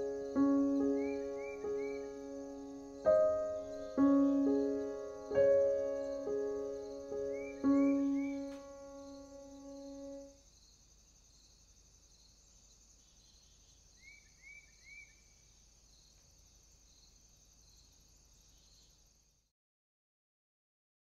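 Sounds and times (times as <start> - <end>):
bird chirps: 0.0 - 10.3, 12.5 - 16.2
piano notes: 0.0 - 10.3
crickets chirping: 0.0 - 19.5.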